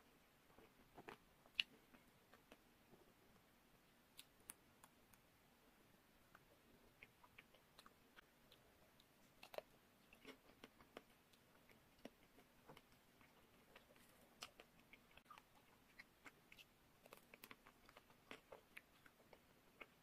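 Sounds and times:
chewing ice cream bar: 6.4s - 20.0s.

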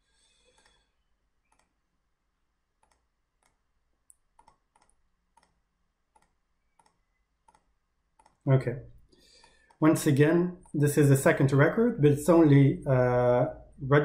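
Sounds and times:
faint computer mouse clicks: 1.5s - 1.7s, 2.8s - 8.4s.

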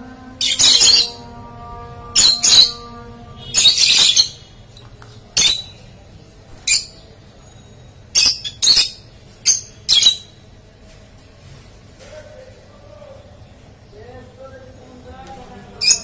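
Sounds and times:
shrill bird calls: 2.2s - 4.5s.

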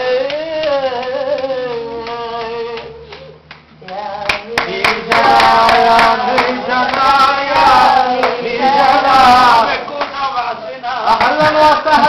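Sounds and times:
sharp hand claps: 0.2s - 7.2s
folk singing: 3.8s - 12.0s.

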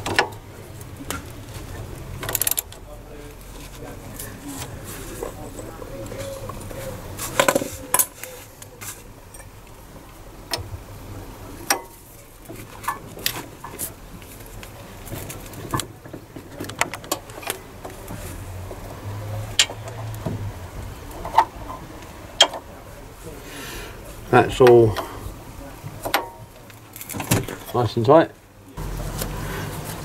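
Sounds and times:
spanner clicking on bolts: 19.6s - 20.0s.

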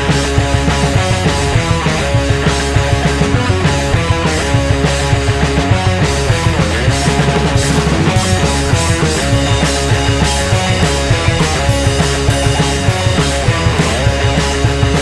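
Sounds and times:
band music with driving beat: 0.0s - 15.0s.

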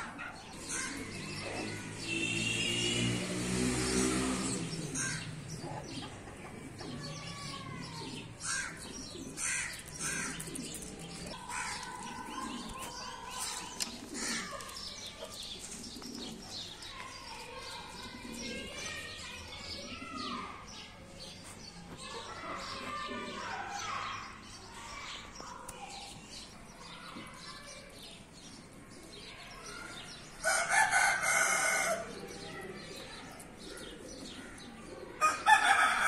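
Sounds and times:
small birds chirping: 0.0s - 35.9s
rooster crowing: 35.2s - 36.0s.

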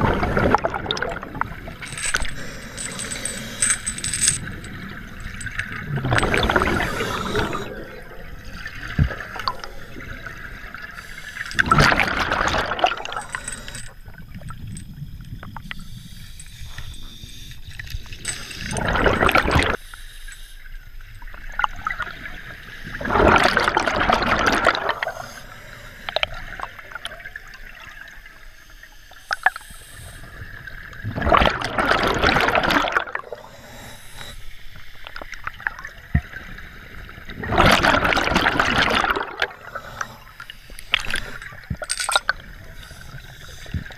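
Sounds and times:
exhaled bubbles surging: 0.0s - 14.7s, 18.6s - 19.8s, 21.5s - 25.3s, 30.4s - 33.5s, 35.4s - 43.9s
regulator inhale hiss: 1.8s - 4.4s, 6.4s - 7.8s, 10.9s - 11.7s, 19.8s - 20.8s, 25.0s - 27.0s, 28.4s - 30.5s, 33.2s - 35.1s, 39.6s - 41.7s, 42.6s - 43.9s.

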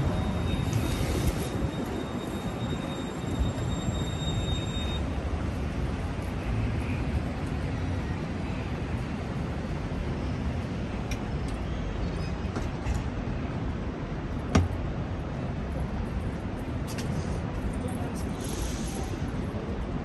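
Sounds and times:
traffic rumble: 0.0s - 20.0s
brief hiss: 18.4s - 19.2s.

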